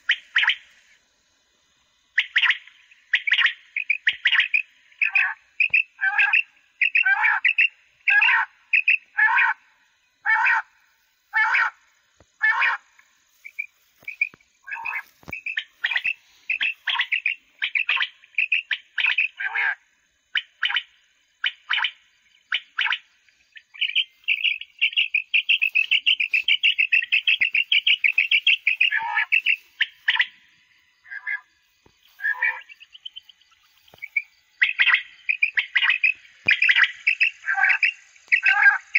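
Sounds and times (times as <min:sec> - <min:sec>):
electronic quail calls: 0:00.0 - 0:00.7, 0:02.2 - 0:09.6, 0:10.2 - 0:10.7, 0:11.3 - 0:11.8, 0:12.4 - 0:38.9.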